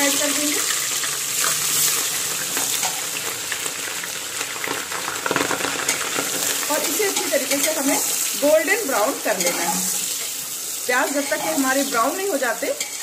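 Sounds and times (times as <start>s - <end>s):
onions sizzling in hot oil: 0.0s - 13.0s
metal spoon stirring: 9.3s - 10.4s, 12.7s - 13.0s.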